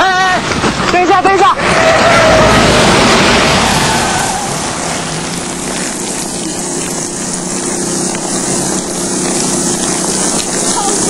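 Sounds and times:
heavy rain pouring: 0.0s - 11.0s
low hum: 1.5s - 11.0s.

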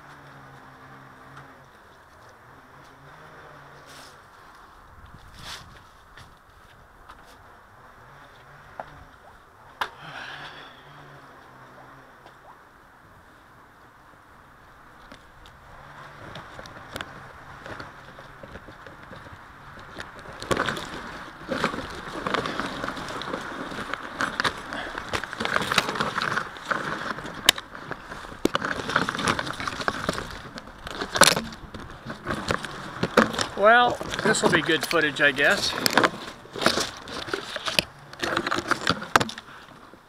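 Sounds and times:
leaves and twigs rustling: 14.4s - 40.0s.

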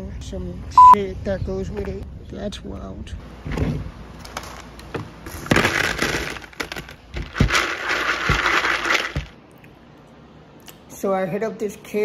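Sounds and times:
pebbles clicking: 5.3s - 9.4s
pebbles poured into glass bowl: 5.6s - 9.3s.

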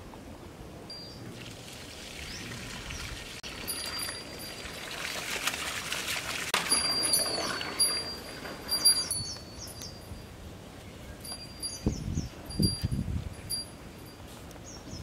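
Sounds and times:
birds whistling and chirping: 0.9s - 1.2s, 6.8s - 10.2s, 10.8s - 12.9s
water splashing from hose: 1.3s - 9.2s.

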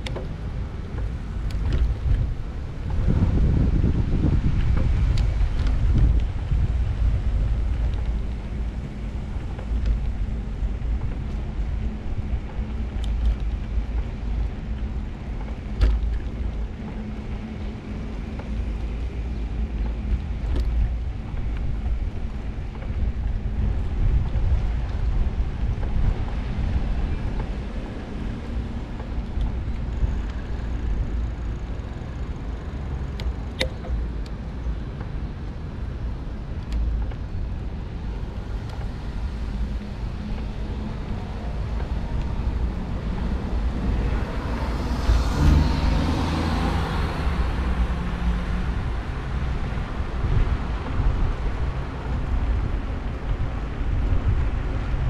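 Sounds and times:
bicycle road noise: 0.0s - 55.0s
wind rumbling on microphone: 0.0s - 55.0s
sharp click: 33.2s - 34.0s
car passing: 38.4s - 55.0s.

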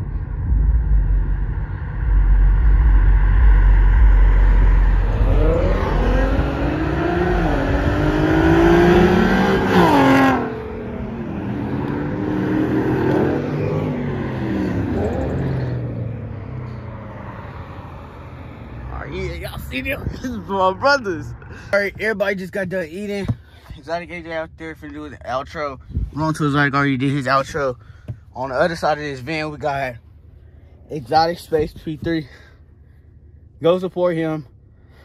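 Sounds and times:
cars revving past: 0.2s - 21.7s.

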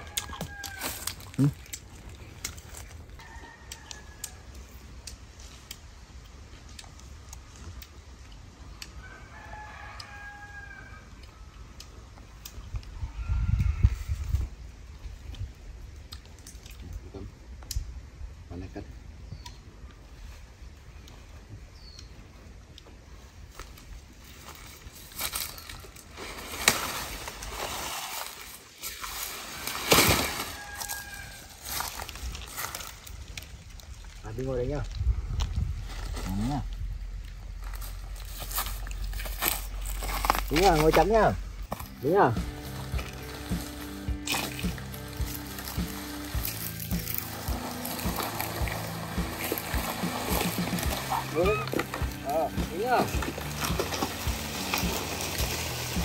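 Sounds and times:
rooster crowing: 0.0s - 1.3s, 3.2s - 4.8s, 9.0s - 11.4s, 30.1s - 32.1s
scuffing steps in leaves: 0.0s - 3.8s, 23.4s - 34.0s, 35.6s - 56.0s
broom dragged over dead leaves: 24.3s - 33.2s, 37.6s - 56.0s
low rumbling noise: 32.1s - 56.0s.

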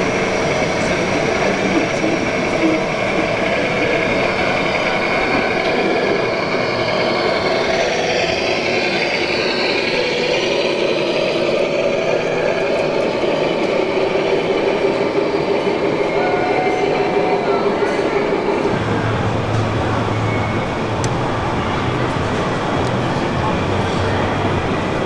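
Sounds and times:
simulated diesel truck engine: 0.0s - 16.2s.

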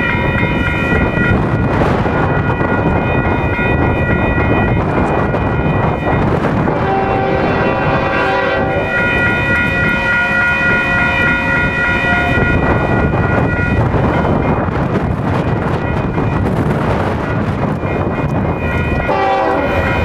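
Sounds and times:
railroad crossing bell ringing: 0.0s - 20.0s
wind buffeting microphone: 0.0s - 20.0s
locomotive horn blasts: 6.6s - 13.8s, 18.6s - 20.0s.

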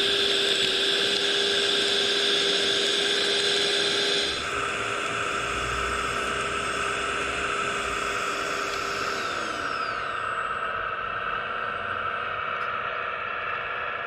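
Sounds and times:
small electric fan whining: 0.0s - 14.0s.

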